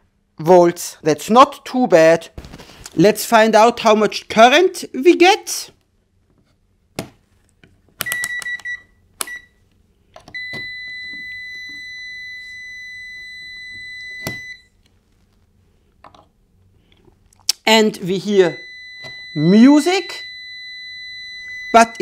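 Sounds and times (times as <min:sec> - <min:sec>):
multimeter continuity beep: 0:08.0 - 0:09.6, 0:10.3 - 0:14.7, 0:18.5 - 0:22.0.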